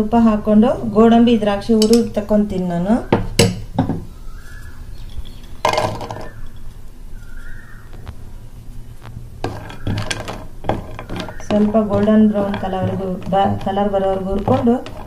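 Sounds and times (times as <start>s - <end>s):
nuts clattering into a pan: 5.2s - 6.6s, 9.4s - 15.0s
wooden spatula stirring in pan: 9.4s - 15.0s.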